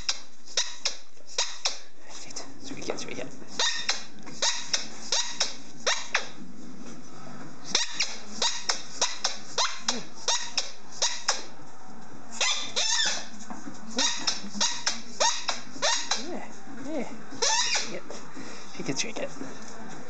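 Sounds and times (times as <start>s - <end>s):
squeaky toy squeaks: 0.0s - 1.7s, 3.5s - 6.4s, 7.7s - 11.5s, 12.4s - 13.3s, 14.0s - 16.3s, 17.4s - 18.0s
dog chomping rubber ball: 0.0s - 1.9s, 7.7s - 11.5s, 14.0s - 16.3s.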